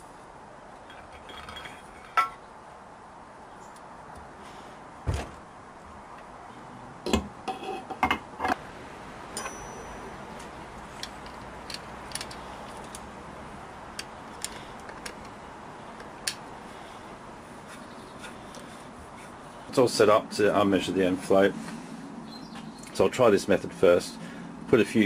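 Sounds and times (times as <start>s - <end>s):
metal knocks and clinks: 0.9s - 2.4s, 9.4s - 10.4s
light clicks of tools and screws: 9.3s - 13.2s, 13.9s - 16.5s.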